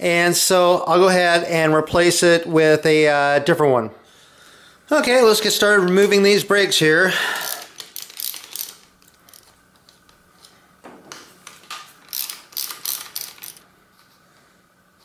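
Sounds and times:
ratchet wrench clicking: 7.4s - 9.5s, 12.0s - 13.6s.

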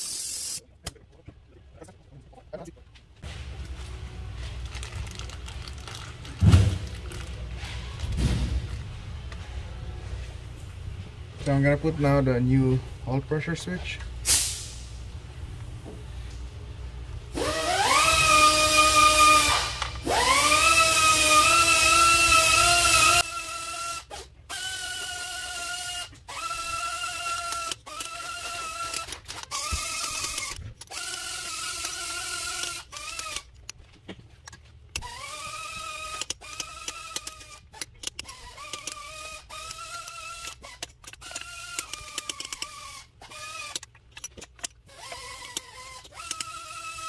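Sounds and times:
power tool motor whirring: 17.4s - 33.6s, 34.9s - 47.0s.

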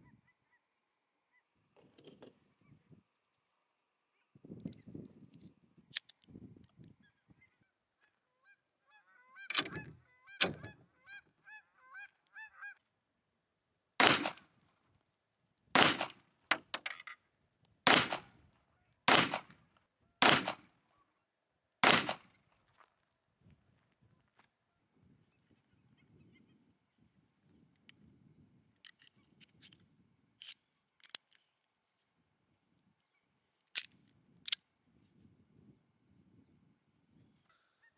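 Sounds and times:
sharp cracks: 14.0s - 14.5s, 15.7s - 16.6s, 17.9s - 18.4s, 19.1s - 19.6s, 20.2s - 20.7s, 21.8s - 22.4s
pistol shots with ringing echo: 15.8s - 16.1s, 17.9s - 18.2s, 19.1s - 19.4s, 20.2s - 20.6s, 21.8s - 22.2s.

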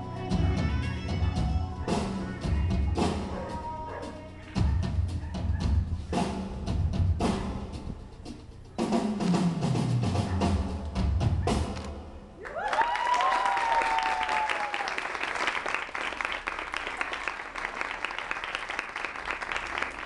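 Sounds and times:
drum-backed music: 0.0s - 12.1s
person cheering: 12.4s - 15.2s
audience applauding: 12.4s - 20.0s.

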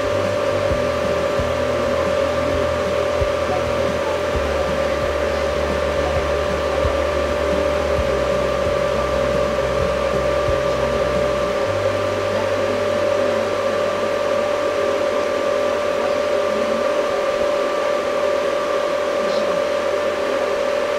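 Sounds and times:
low rumble: 0.0s - 17.9s
constant whine: 0.0s - 20.9s
electric fan whirring: 0.0s - 20.9s.

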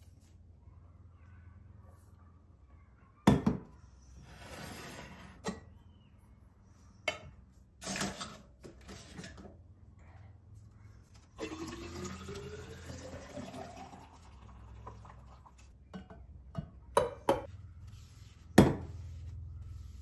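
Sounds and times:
tea pouring into glass carafe: 11.4s - 15.6s.

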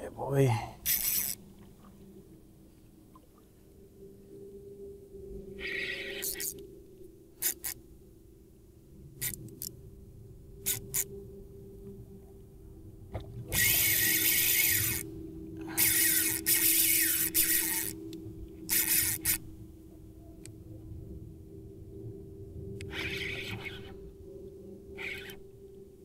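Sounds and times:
fishing reel drag buzzing: 0.8s - 1.4s, 5.5s - 6.6s, 7.4s - 7.8s, 9.2s - 9.7s, 10.6s - 11.2s, 13.5s - 19.5s, 22.8s - 24.0s, 25.0s - 25.5s.

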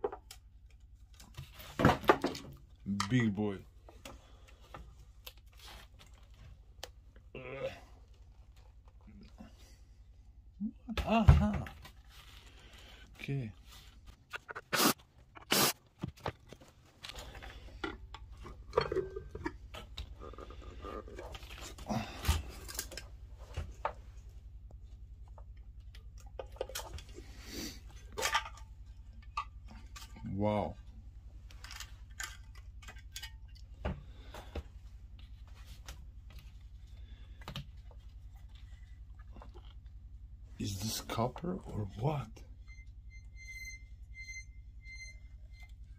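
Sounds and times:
low steady hum: 0.0s - 45.9s.

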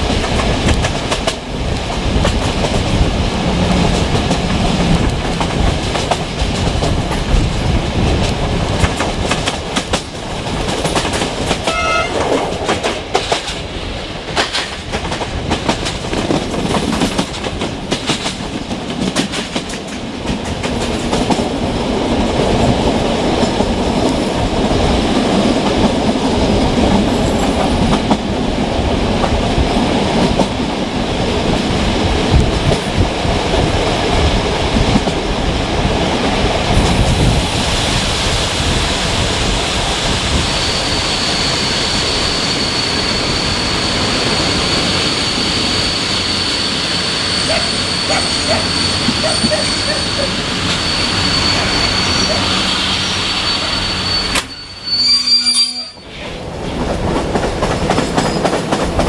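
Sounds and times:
train wheels clickety-clack: 0.0s - 54.6s, 56.2s - 59.0s
train rushing running noise: 0.0s - 55.2s, 55.8s - 59.0s
short tone: 11.7s - 12.2s, 50.8s - 56.0s.

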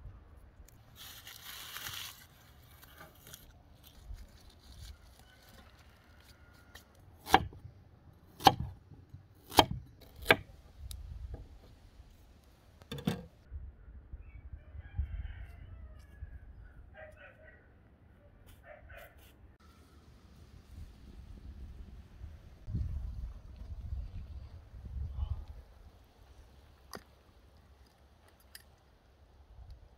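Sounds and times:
knife chopping on wooden board: 7.2s - 7.6s, 8.4s - 8.8s, 9.4s - 10.5s.

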